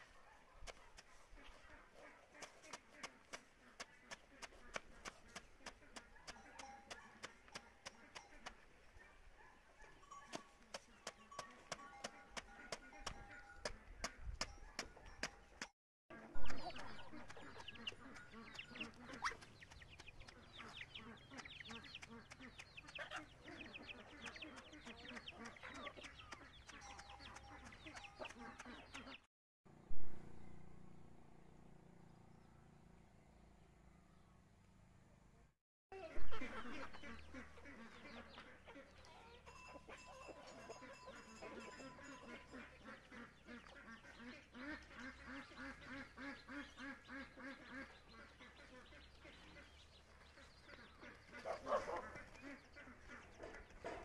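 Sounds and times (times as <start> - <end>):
hens clucking: 0.7 - 9.0, 9.8 - 15.1, 16.2 - 29.2, 36.0 - 54.0
poultry calling: 1.0 - 14.2, 16.2 - 29.2, 36.0 - 54.0
chicks peeping: 16.2 - 29.3, 36.0 - 39.5, 40.4 - 54.0.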